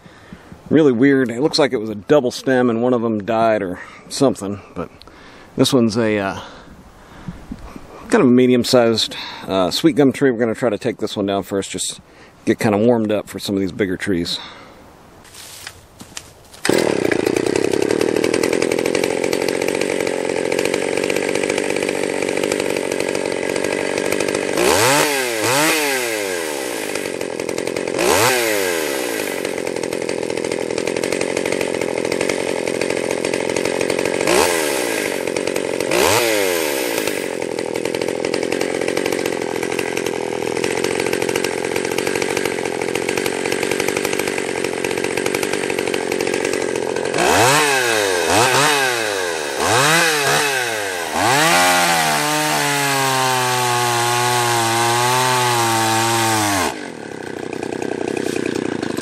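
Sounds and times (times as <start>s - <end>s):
chainsaw cutting into tree: 16.5s - 59.0s.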